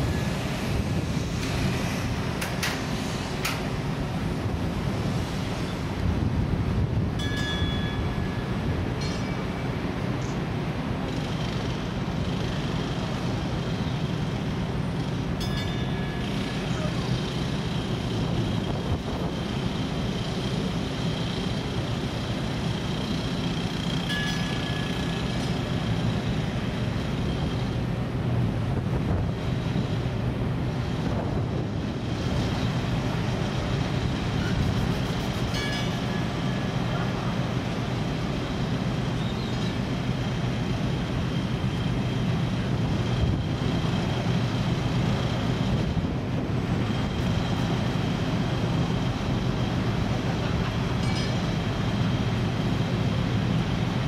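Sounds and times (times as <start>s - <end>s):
electric locomotives on rails: 0.0s - 54.0s
thin high whine: 7.2s - 10.4s, 34.2s - 40.7s, 50.3s - 52.8s.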